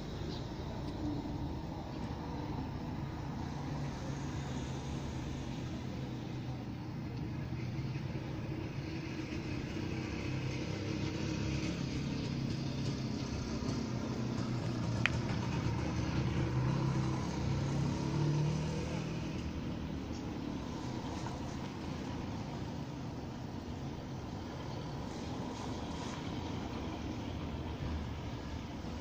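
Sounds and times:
cars and motorcycles passing: 0.0s - 29.0s.

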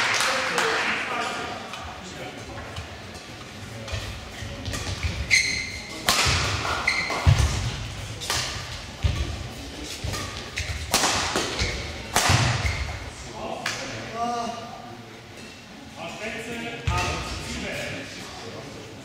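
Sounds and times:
rackets striking shuttlecock: 3.9s - 5.3s, 5.9s - 13.0s
shoe squeaks: 5.1s - 6.0s, 6.8s - 7.2s.

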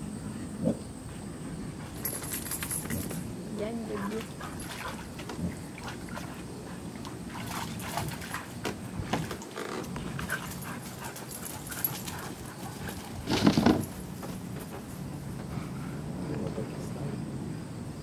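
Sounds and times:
dogs scuffling: 1.8s - 15.4s.

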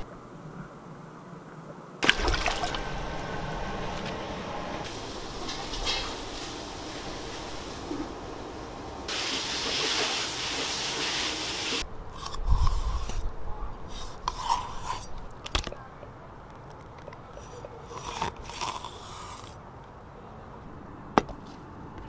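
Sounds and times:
steady hiss: 2.0s - 11.8s
knife scraping and cutting fish: 13.9s - 15.2s.

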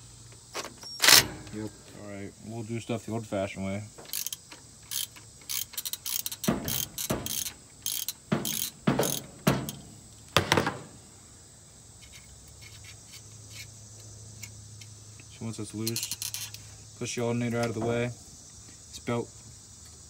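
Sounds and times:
ratcheting wrench clicking: 4.1s - 9.8s, 15.8s - 16.6s.

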